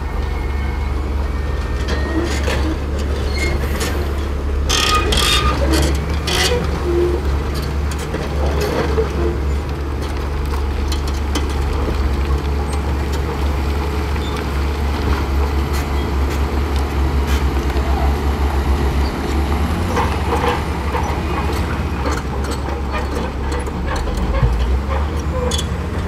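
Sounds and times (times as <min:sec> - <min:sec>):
bulldozer diesel engines rumbling: 0:00.0 - 0:26.0
clanks and rattles: 0:01.6 - 0:13.4, 0:18.8 - 0:26.0.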